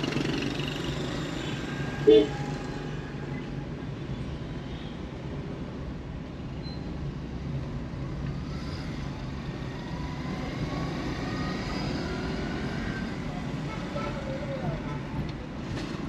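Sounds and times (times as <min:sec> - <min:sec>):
car engine and tyre rumble: 0:00.0 - 0:16.0.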